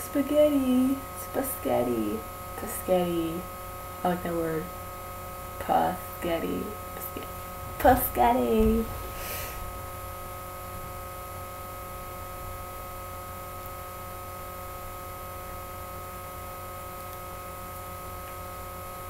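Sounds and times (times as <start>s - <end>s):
electrical hum: 0.0s - 19.0s
faint hiss: 8.2s - 10.0s.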